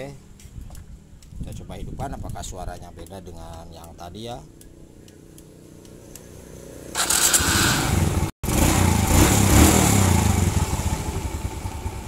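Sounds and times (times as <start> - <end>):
motorcycle engine starting and running: 4.6 - 12.0.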